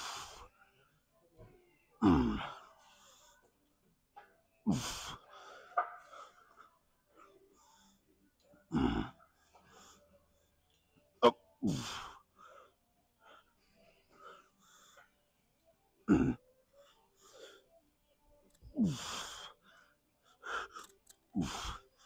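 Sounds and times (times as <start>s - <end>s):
man breathing: 0.0s - 0.5s, 11.7s - 15.1s, 18.5s - 22.0s.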